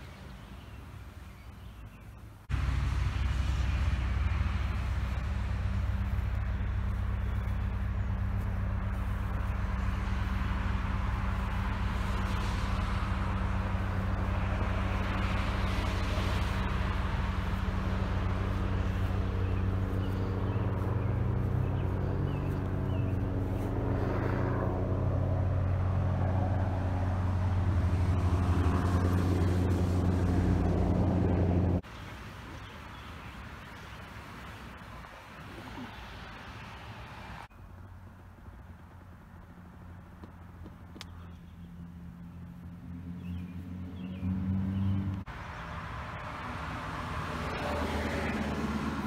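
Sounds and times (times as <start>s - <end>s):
steady low engine drone: 1.9s - 31.8s.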